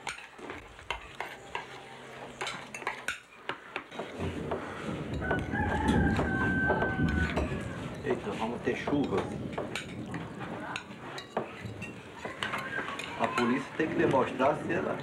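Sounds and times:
dishes and utensils clinking: 0.0 - 15.0
rooster crowing: 5.2 - 7.9.

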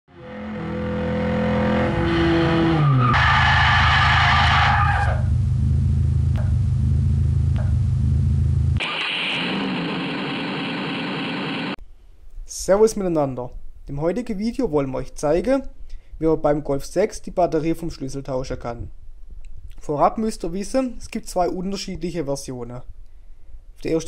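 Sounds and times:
tyre skid screech: 0.7 - 5.3
low engine rumble: 5.0 - 8.8.

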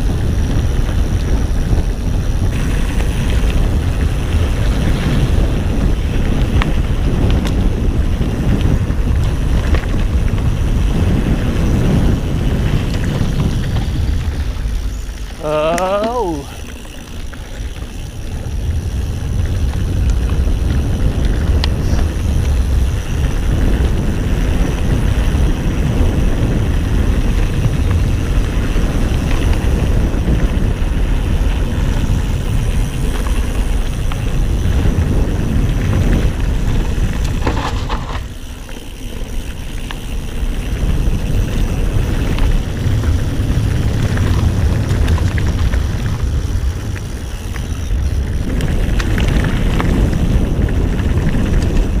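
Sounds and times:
bike rattling: 0.0 - 52.0
wind buffeting microphone: 0.0 - 52.0
tyre rumble on dirt: 16.0 - 52.0.

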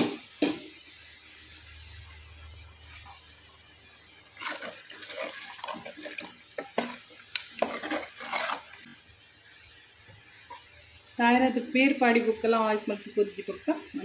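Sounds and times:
curry sloshing in a pan: 4.4 - 9.0.

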